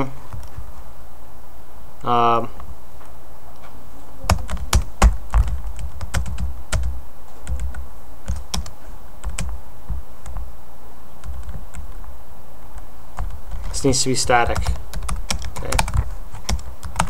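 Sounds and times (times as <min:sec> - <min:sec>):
typing on computer keyboard: 0:04.3 - 0:06.9, 0:14.5 - 0:17.0.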